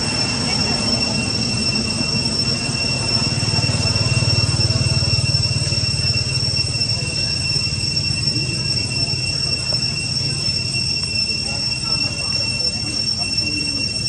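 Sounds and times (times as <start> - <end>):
high-pitched insect drone: 0.0 - 14.0.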